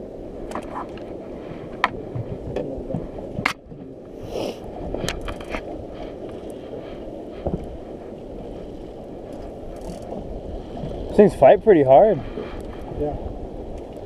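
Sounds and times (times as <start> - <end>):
wind and water rumble: 0.0 - 14.0
fishing reel clicks and knocks: 9.8 - 10.1.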